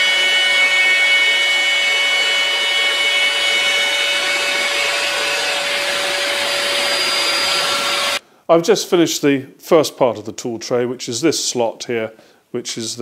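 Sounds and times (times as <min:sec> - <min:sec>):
router whining while milling wood: 0:00.0 - 0:08.2.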